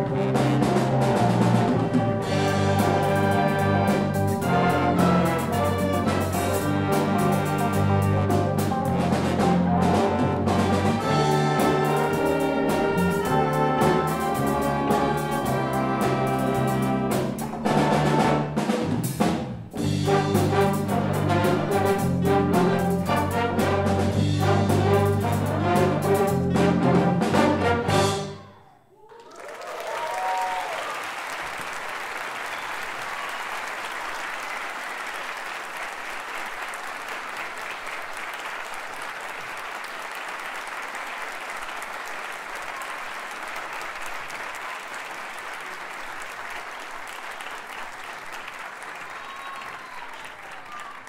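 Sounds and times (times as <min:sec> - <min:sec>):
orchestra and big band playing: 0:00.0 - 0:28.6
people cheering: 0:28.2 - 0:51.0
audience applause: 0:28.9 - 0:51.0.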